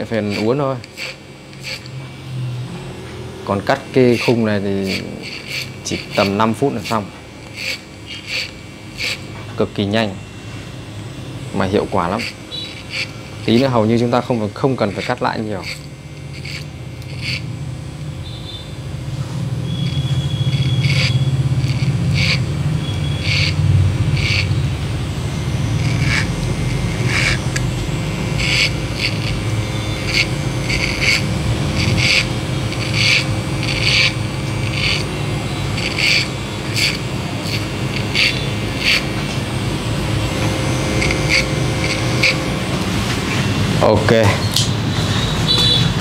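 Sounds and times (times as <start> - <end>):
electric hair clipper humming: 0.0 - 46.0.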